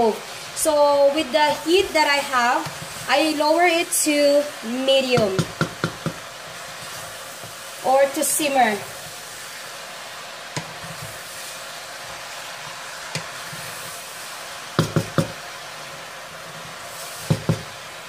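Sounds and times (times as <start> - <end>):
steady hiss: 0.0 - 18.0
spatula knocking against pot: 5.2 - 6.2, 14.8 - 15.4.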